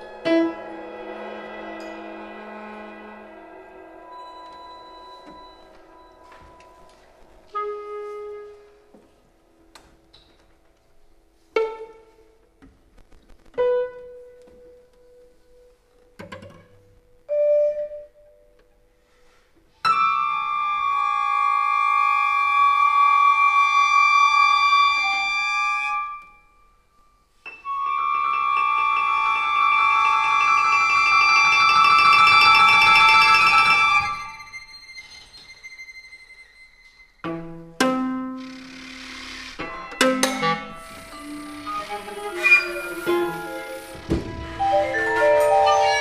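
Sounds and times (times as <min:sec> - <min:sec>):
sustained loud chord: 0:00.0 - 0:08.2
chamber ensemble music: 0:00.0 - 0:12.6, 0:13.6 - 0:46.0.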